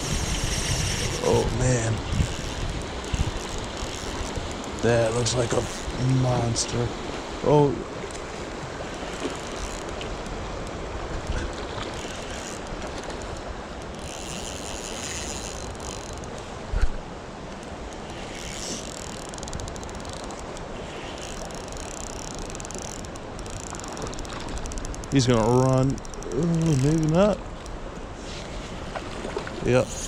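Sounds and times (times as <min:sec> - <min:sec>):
flowing creek water: 0:00.0 - 0:30.0.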